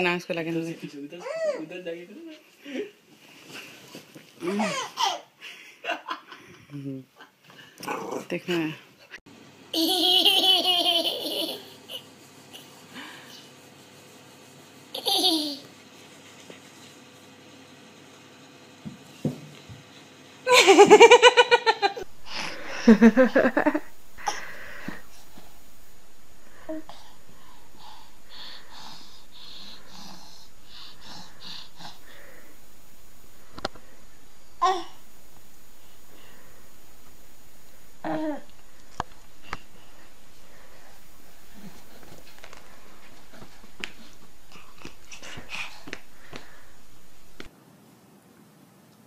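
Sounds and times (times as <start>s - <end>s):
baby wheezing laughter: 4.4s - 5.3s
toddler giggling: 9.8s - 12.1s, 15.0s - 15.6s.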